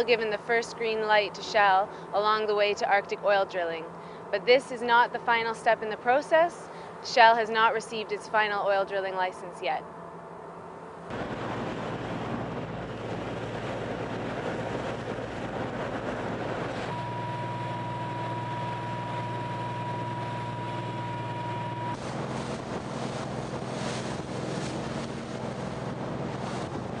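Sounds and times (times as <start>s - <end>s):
low machinery drone: 0.0s - 27.0s
wind buffeting microphone: 11.1s - 27.0s
steady high tone: 16.8s - 22.0s.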